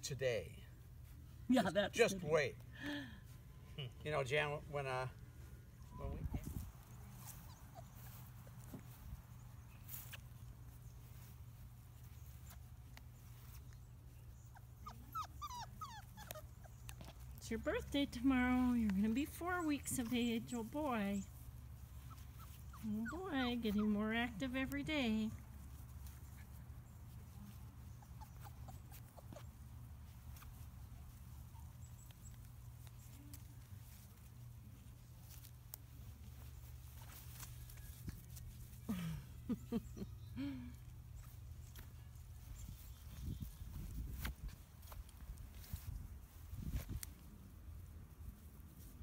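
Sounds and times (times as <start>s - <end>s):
puppies squeaking: 5.8s - 10.3s, 12.0s - 17.5s, 19.1s - 23.9s, 26.0s - 33.1s
puppies squealing: 6.9s - 8.4s, 14.3s - 17.4s, 27.8s - 29.6s.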